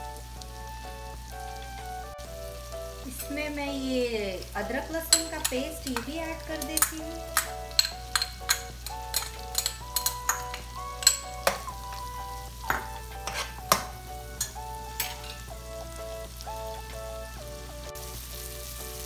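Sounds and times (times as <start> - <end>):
background music melody: 0.0 - 19.0
food sizzling: 0.0 - 19.0
metal spatula scraping frying pan: 5.1 - 12.0, 12.6 - 15.5.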